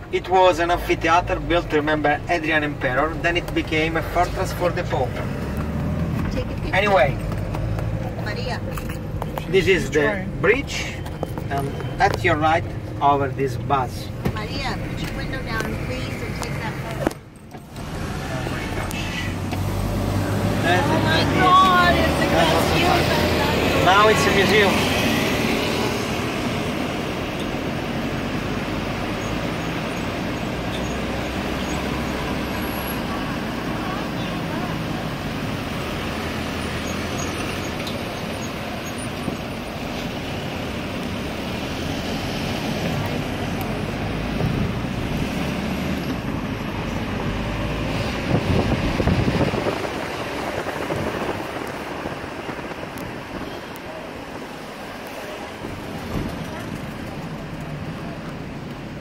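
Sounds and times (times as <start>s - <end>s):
road traffic rumble and hiss: 0.0s - 59.0s
wind rushing over microphone: 41.4s - 54.6s.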